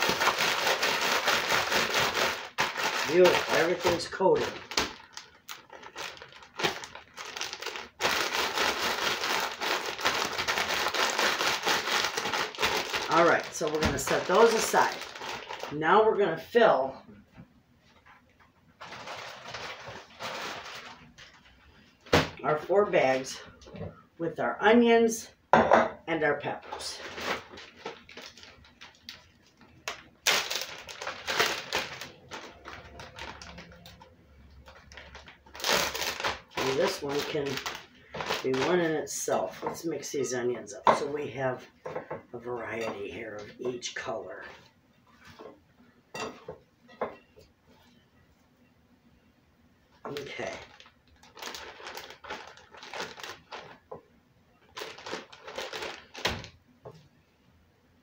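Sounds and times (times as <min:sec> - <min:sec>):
plastic bag crinkling: 0:00.0 - 0:16.5, 0:18.8 - 0:22.3, 0:26.4 - 0:40.1, 0:50.0 - 0:56.6
plastic bag snap: 0:29.9 - 0:32.1.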